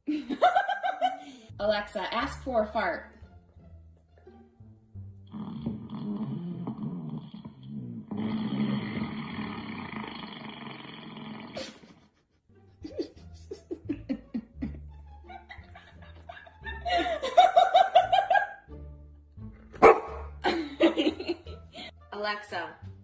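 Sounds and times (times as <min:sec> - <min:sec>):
rapid rhythmic laughter: 0:00.1 - 0:01.4, 0:11.8 - 0:18.6, 0:20.4 - 0:21.9
fart sound effect: 0:05.3 - 0:12.0.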